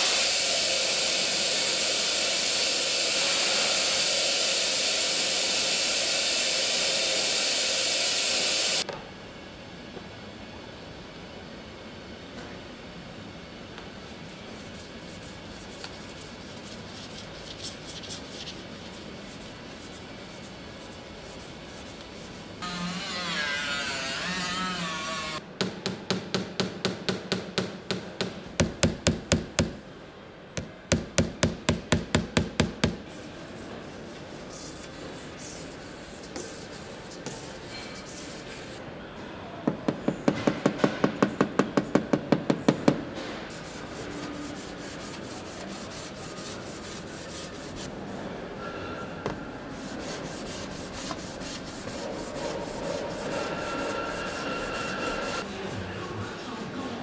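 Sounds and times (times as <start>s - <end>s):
hand tool strokes on metal panel: 43.5s - 47.9s, 49.8s - 55.4s.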